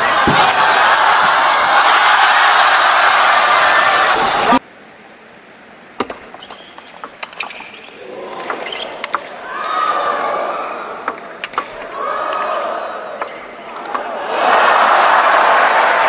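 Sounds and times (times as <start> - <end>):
table tennis ball clicks: 11.1 - 12.5.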